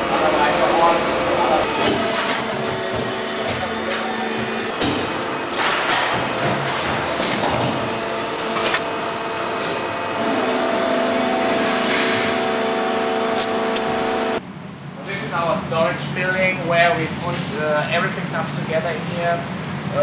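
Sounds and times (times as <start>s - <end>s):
factory machines running: 0.0s - 20.0s
multi-tone hum: 0.0s - 20.0s.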